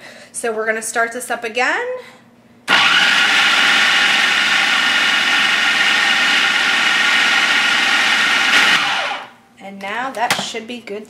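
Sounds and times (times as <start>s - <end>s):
food processor motor whirring: 2.7s - 9.4s.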